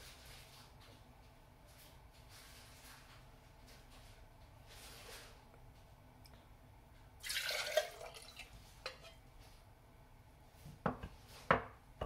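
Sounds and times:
water splashing into washbasin: 7.2s - 8.5s.

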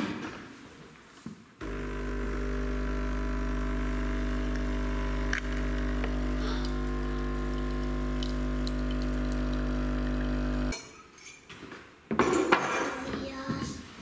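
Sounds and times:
coffee machine pump humming: 1.6s - 10.7s.

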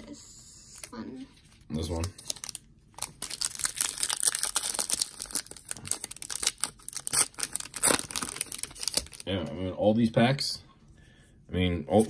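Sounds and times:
plastic pack crinkling: 1.8s - 9.3s.

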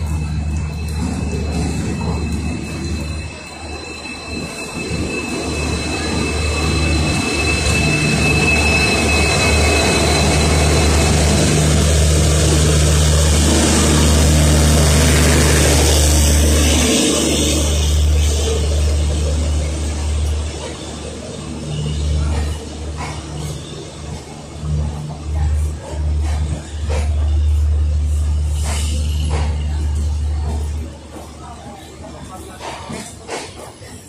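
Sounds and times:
high wheel squeal: 0.0s - 25.2s
diesel locomotive engine drone: 0.0s - 34.0s
train coaches rolling: 0.0s - 34.0s.

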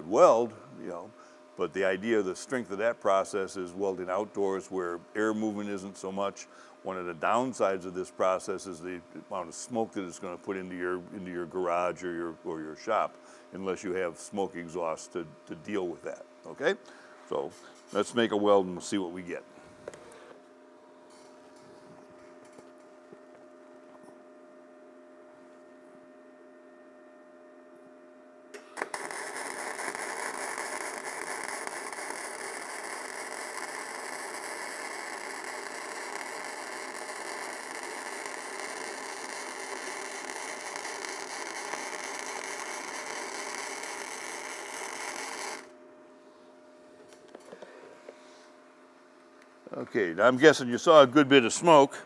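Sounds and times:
steady hum: 0.0s - 52.0s
welding arc: 28.5s - 45.7s.

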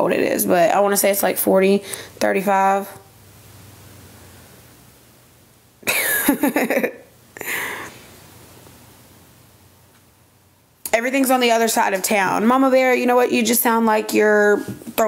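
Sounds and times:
woman coughing: 5.8s - 7.0s.

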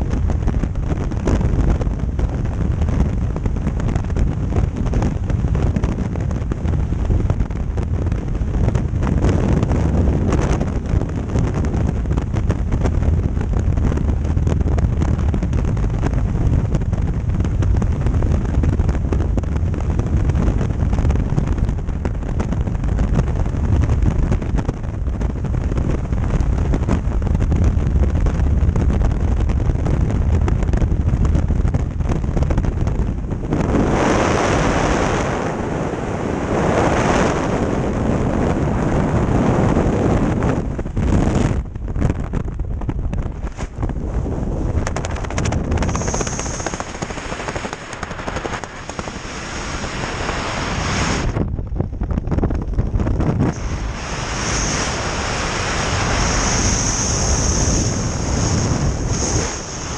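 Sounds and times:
wind rushing over microphone: 0.0s - 59.9s
parachute fabric flapping: 28.3s - 59.9s.

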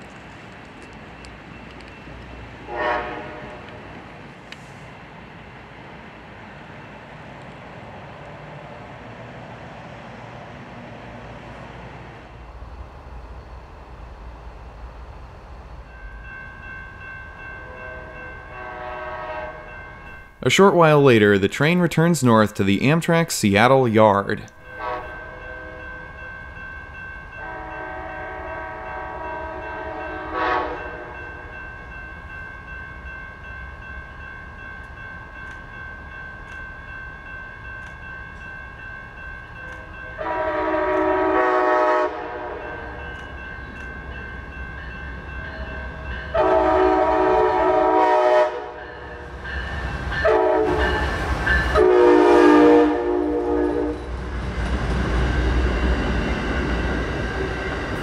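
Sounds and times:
train rumbling past: 0.0s - 58.0s
train horn: 2.6s - 3.8s, 17.6s - 19.8s, 24.6s - 26.1s, 27.4s - 31.4s, 40.0s - 43.2s, 45.5s - 49.2s, 50.2s - 54.1s.

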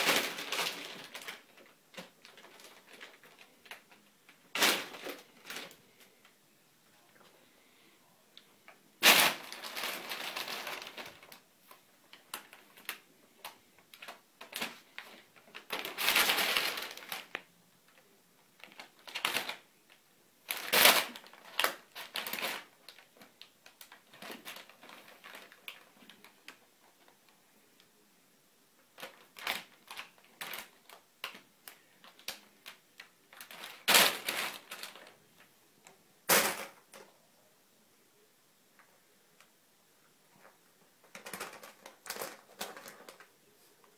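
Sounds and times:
paper bag crinkling and rustling: 0.0s - 6.0s, 9.0s - 17.5s, 18.6s - 19.6s, 20.4s - 27.2s, 29.0s - 35.3s, 41.1s - 43.3s.

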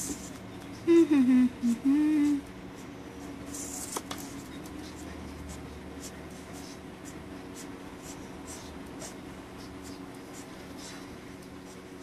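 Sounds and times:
marker scratching on paper: 2.7s - 12.0s.

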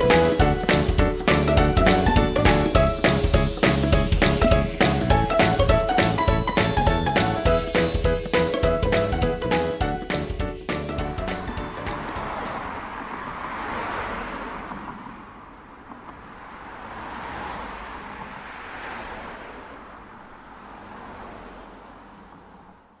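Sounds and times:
pitchless rushing noise: 0.0s - 15.3s.

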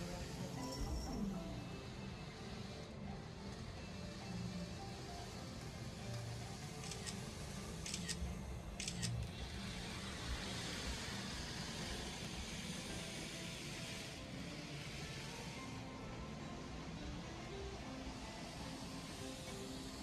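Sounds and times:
model train running hiss: 0.0s - 20.0s
model train clicks: 6.1s - 8.2s.

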